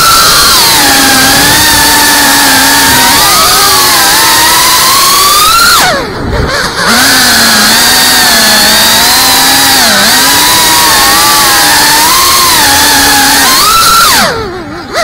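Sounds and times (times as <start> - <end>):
drone motors whining in flight: 0.0 - 15.0.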